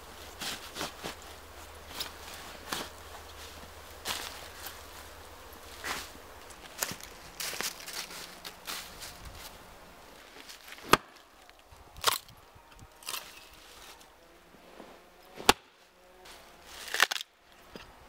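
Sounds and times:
hatchet chopping log: 0:10.8 - 0:11.2, 0:15.4 - 0:15.7.

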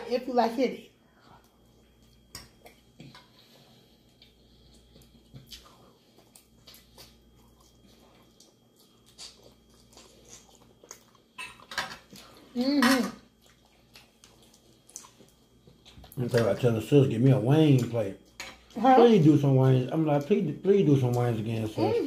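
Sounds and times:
chewing: 0:01.3 - 0:12.6, 0:13.2 - 0:18.8.

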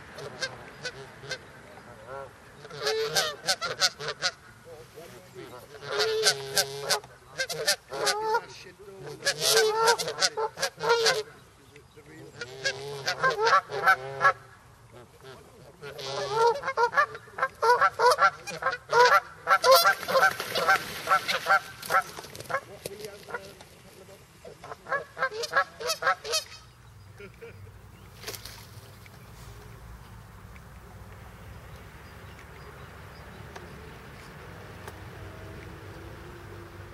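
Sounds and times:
geese honking: 0:00.2 - 0:04.5, 0:05.4 - 0:11.4, 0:12.2 - 0:23.5, 0:24.4 - 0:27.3.

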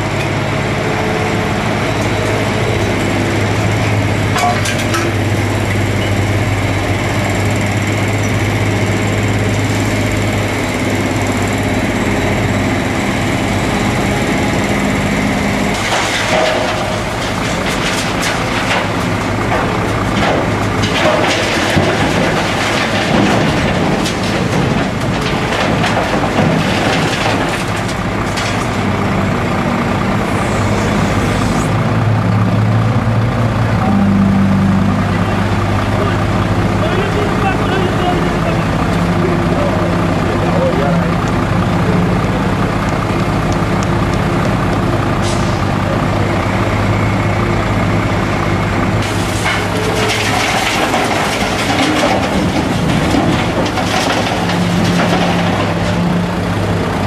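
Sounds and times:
diesel engine humming: 0:00.0 - 0:57.0
rubble clattering into steel truck: 0:03.6 - 0:05.3, 0:15.6 - 0:29.4, 0:48.3 - 0:57.0.

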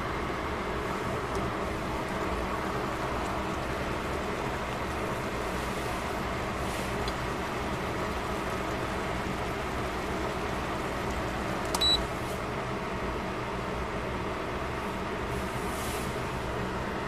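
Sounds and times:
sauce bubbling and sizzling: 0:00.4 - 0:12.2.

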